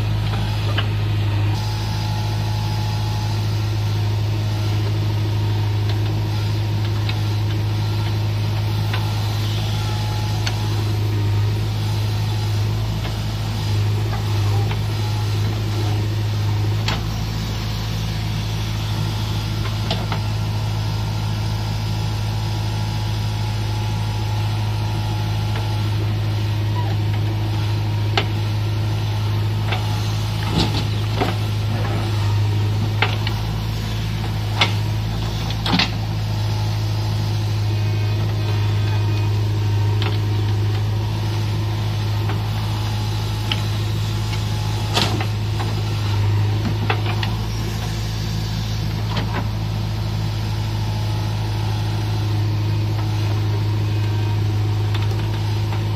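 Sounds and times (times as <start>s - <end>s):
diesel engine running: 0.0s - 55.9s.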